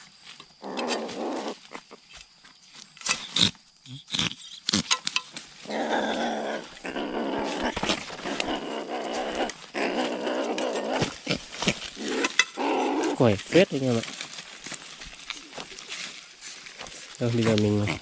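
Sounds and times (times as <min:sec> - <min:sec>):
animal growling raspily: 0:00.6 - 0:01.9, 0:03.1 - 0:05.0, 0:05.6 - 0:14.1, 0:17.4 - 0:18.0.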